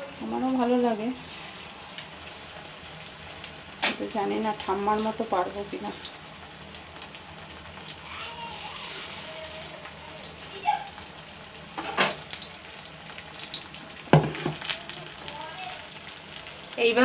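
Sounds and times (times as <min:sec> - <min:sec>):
deep-frying in oil sizzling: 0:00.0 - 0:17.0.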